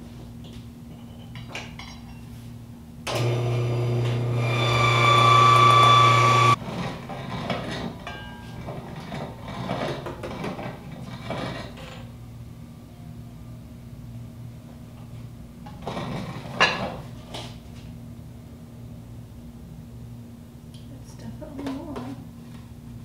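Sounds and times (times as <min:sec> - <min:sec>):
electric mill motor running: 0:03.1 - 0:06.6
hand-cranked grain mill grinding: 0:04.0 - 0:07.8.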